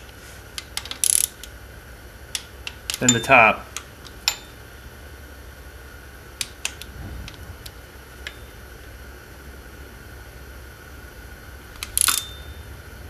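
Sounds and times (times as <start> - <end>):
torque wrench clicking: 0.6 - 1.6, 2.3 - 4.6, 6.4 - 6.9, 11.8 - 12.4
low hum: 1.3 - 13.0.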